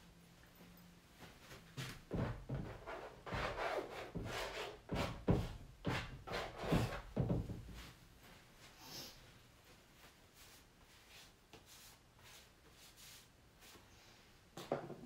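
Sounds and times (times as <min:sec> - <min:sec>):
painting tool scratching canvas: 0:02.6 - 0:07.1.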